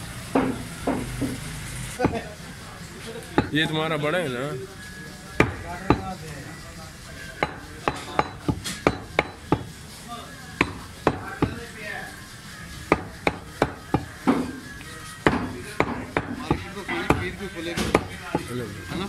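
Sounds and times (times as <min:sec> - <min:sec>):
cleaver chopping meat on wood: 0:00.4 - 0:01.4, 0:05.4 - 0:06.2, 0:07.4 - 0:09.7, 0:10.6 - 0:11.6, 0:12.9 - 0:14.6, 0:15.3 - 0:18.5.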